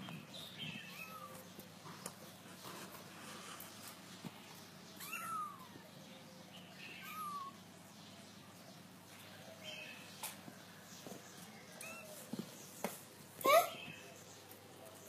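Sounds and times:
kitten mewing: 5.0s - 5.8s.

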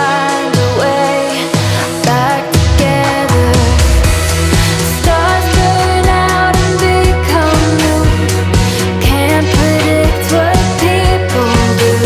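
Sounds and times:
background music with steady beat: 0.0s - 12.0s.

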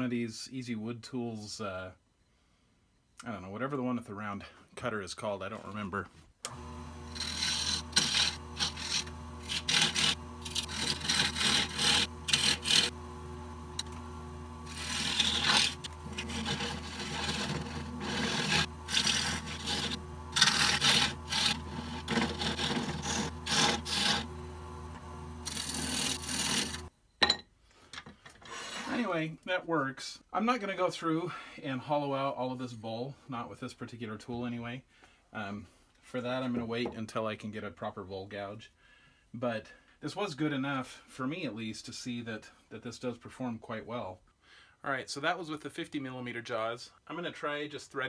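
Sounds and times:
tool scraping spinning wood: 6.5s - 26.9s
wood lathe humming: 6.5s - 26.9s.

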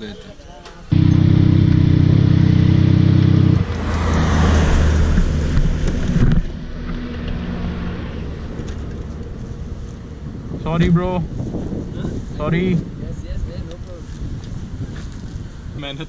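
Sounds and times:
motorcycle engine idling: 0.9s - 3.6s
quiet steady engine hum: 0.9s - 4.2s
passing traffic rush: 0.9s - 15.8s.

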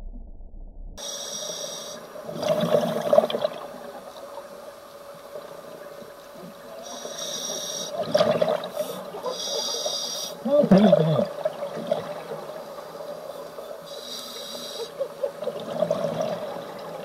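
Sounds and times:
regulator hissing inhale: 1.0s - 2.2s, 6.8s - 8.0s, 8.7s - 10.4s, 13.9s - 15.0s.

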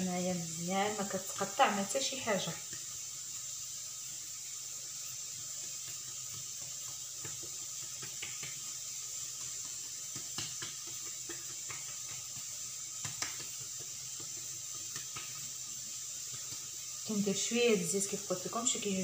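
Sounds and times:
steady hiss: 0.0s - 19.0s
hands rubbing sticky dough: 5.4s - 17.0s
light taps on countertop: 5.6s - 8.7s, 9.4s - 15.4s.

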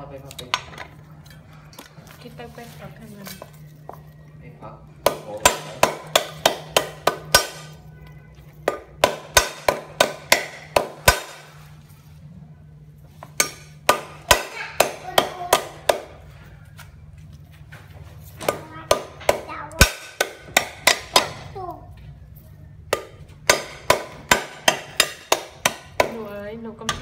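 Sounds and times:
cleaver chopping on wooden block: 5.0s - 7.8s, 8.6s - 11.5s, 13.2s - 16.2s, 18.4s - 21.4s, 22.9s - 26.3s.

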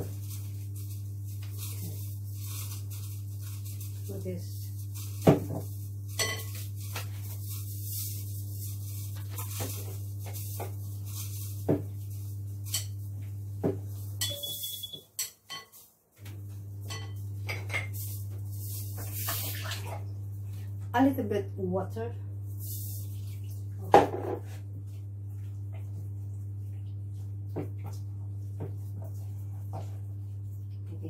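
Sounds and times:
spoon stirring flour in bowl: 0.0s - 13.0s, 27.6s - 30.4s
spoon clinking against glass: 14.2s - 15.8s, 16.8s - 17.9s.

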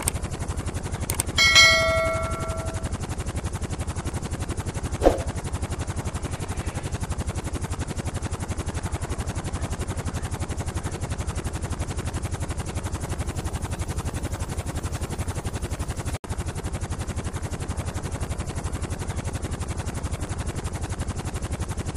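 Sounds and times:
helicopter rotor blades beating: 0.0s - 21.9s.

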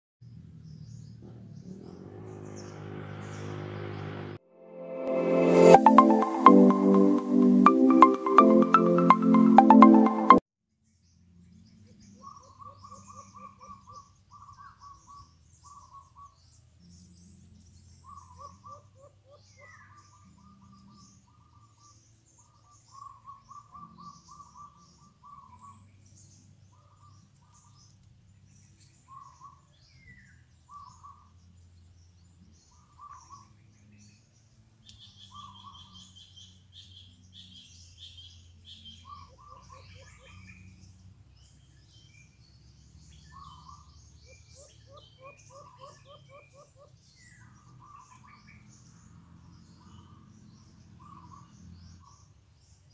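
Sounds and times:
small birds chirping: 0.2s - 4.4s, 10.8s - 52.9s
doves calling: 35.0s - 40.8s, 43.3s - 48.9s, 49.8s - 52.3s.

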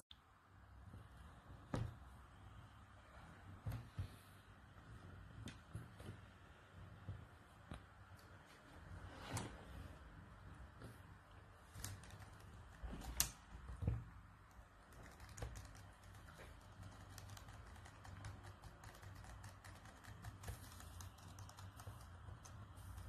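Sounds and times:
laptop keyboard typing: 14.5s - 23.0s.

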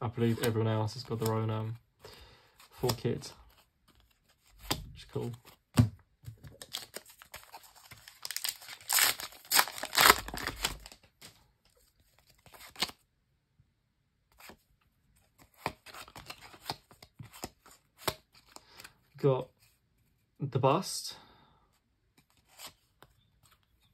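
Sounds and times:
cards rustling and clicking: 0.2s - 1.8s, 2.5s - 13.0s, 14.3s - 14.6s, 15.2s - 19.0s, 22.1s - 23.9s
wrapper tearing and crinkling: 6.5s - 11.1s.

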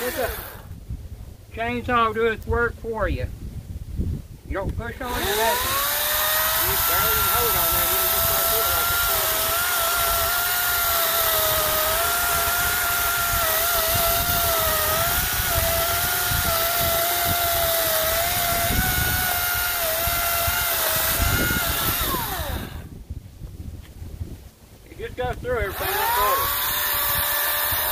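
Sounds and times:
battery chainsaw cutting log: 0.0s - 0.7s, 5.0s - 22.9s, 25.6s - 27.9s.

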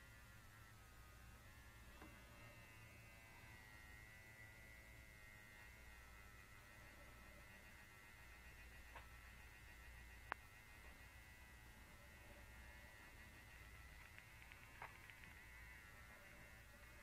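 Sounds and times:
vibrator buzzing hum: 0.0s - 17.0s
small tick: 10.2s - 10.5s.

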